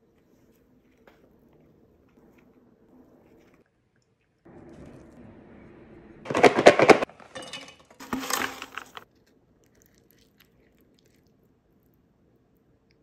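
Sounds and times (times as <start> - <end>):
chips rattling in plastic container: 8.0 - 9.0.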